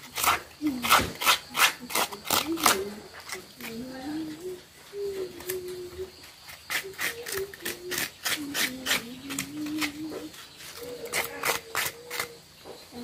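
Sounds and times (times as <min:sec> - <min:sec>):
hand scraper shredding vegetable: 0:00.0 - 0:02.9, 0:06.5 - 0:12.4.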